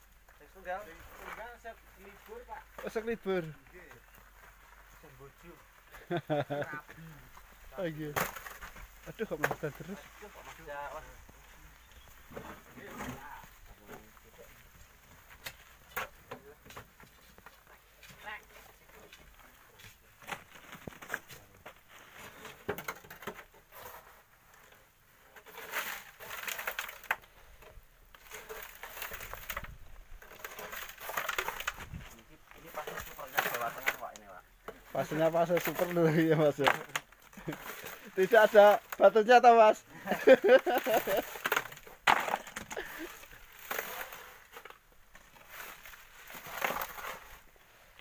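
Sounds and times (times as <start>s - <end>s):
shovels tipping gravel into wheelbarrow: 25.3s - 27.2s, 28.2s - 34.2s, 34.9s - 39.1s, 40.0s - 48.0s
gravel scraping through sieve: 25.4s - 27.0s.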